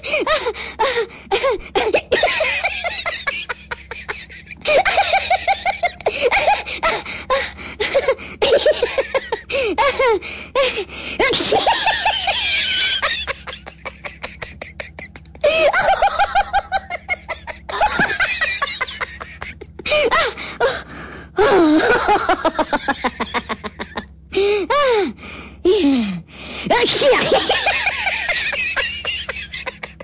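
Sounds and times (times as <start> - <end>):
person laughing: 0.0 - 25.0, 26.7 - 30.0
wheezy gasping breaths: 9.5 - 11.2, 19.9 - 21.5, 24.3 - 26.7.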